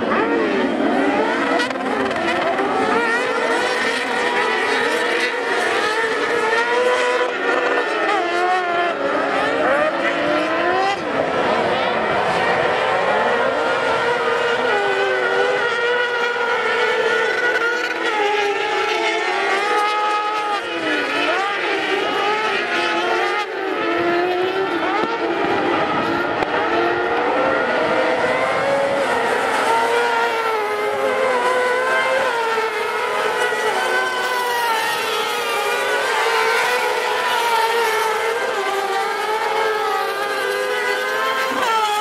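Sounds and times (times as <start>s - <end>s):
racing buggy engines revving: 0.0s - 42.0s.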